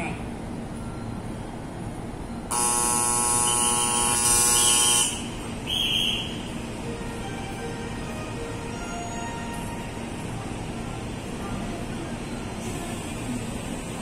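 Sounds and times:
platform buzzer: 2.5s - 5.4s.

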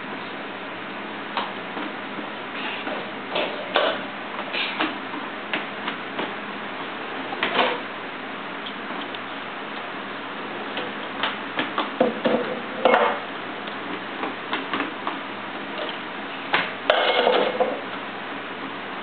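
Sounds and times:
dishes clattering and clinking: 12.0s - 13.2s, 16.9s - 17.8s.

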